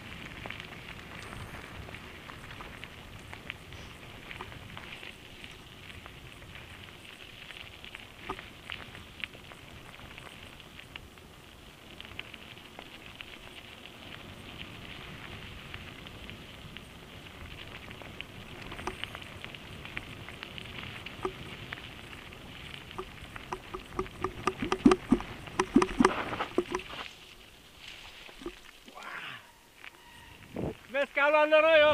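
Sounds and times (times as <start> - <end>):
bike tyres on gravel: 0.0 - 31.9
bike rattle: 23.0 - 27.2.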